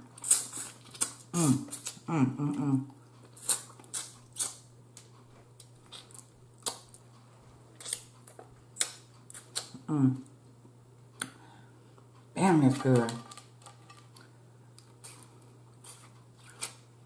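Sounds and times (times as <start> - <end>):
steady low hum: 0.0 - 17.0
wet mouth smacks and clicks: 8.8 - 9.8.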